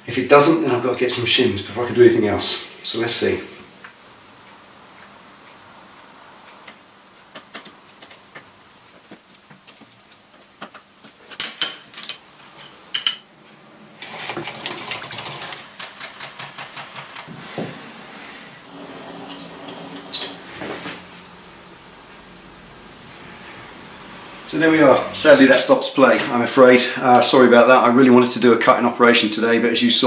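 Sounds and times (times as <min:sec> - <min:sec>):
metal-on-metal clinks and knocks: 0:11.3 - 0:13.3, 0:14.0 - 0:16.2
scraping rattle: 0:14.0 - 0:17.8.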